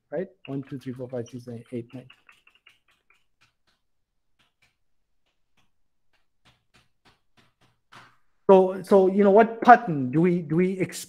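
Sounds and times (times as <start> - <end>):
computer keyboard typing: 0.4 - 8.2.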